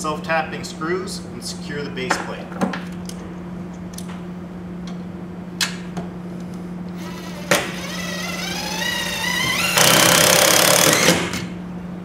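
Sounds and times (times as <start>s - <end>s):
cordless drill whining: 7.0s - 11.2s.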